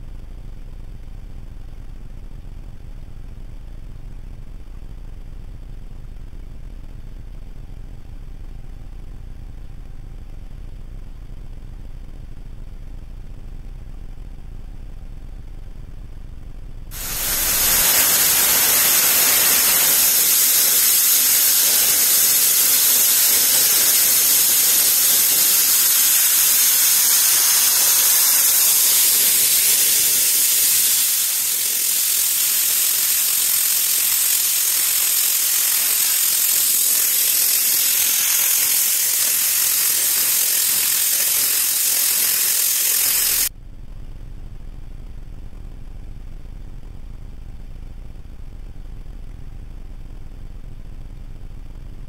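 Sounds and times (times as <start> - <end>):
cnc router spindle hissing: 16.9 - 43.5.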